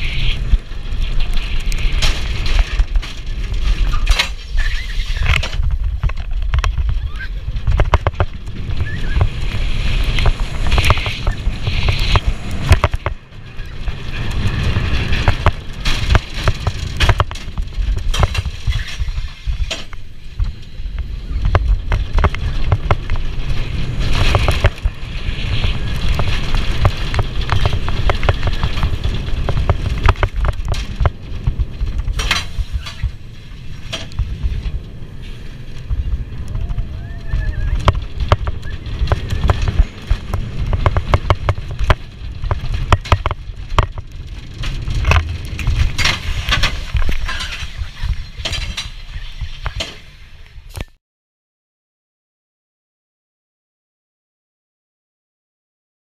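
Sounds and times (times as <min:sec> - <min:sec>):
coaster car knocking and clattering: 0:00.0 - 0:50.2
coaster wheels rumbling and rattling: 0:00.0 - 0:51.0.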